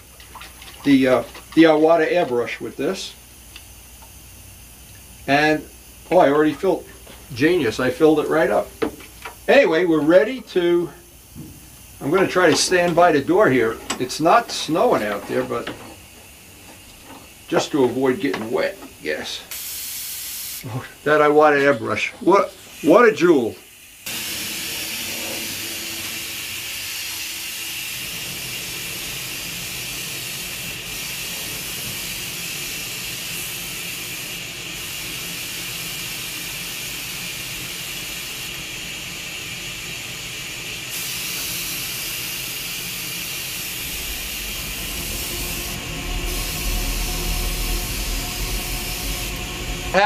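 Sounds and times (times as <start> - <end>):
airbrush hissing: 19.3 - 21.2, 22.4 - 50.0
low rumble: 43.4 - 50.0.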